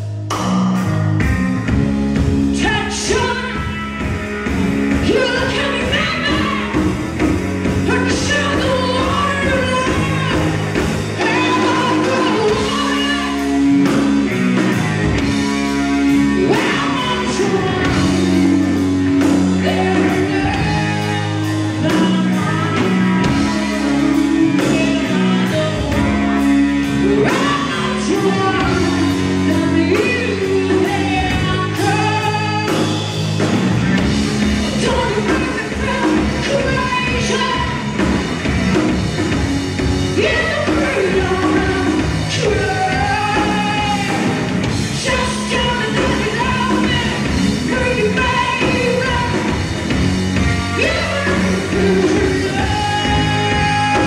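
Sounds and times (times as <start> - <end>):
drum kit: 0.0 - 54.0
electric bass: 0.0 - 54.0
electric guitar: 0.0 - 54.0
woman singing: 2.6 - 3.8, 5.0 - 6.9, 7.8 - 14.1, 16.0 - 33.2, 34.7 - 38.2, 40.1 - 49.8, 50.4 - 54.0.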